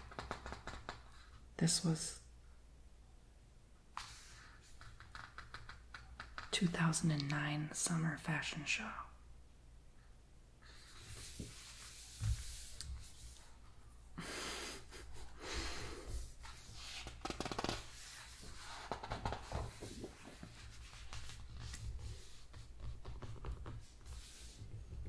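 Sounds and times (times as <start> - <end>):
hands rubbing over pages: 4.0 - 6.5, 10.6 - 13.7, 15.9 - 25.0
book pages turning: 16.5 - 24.6.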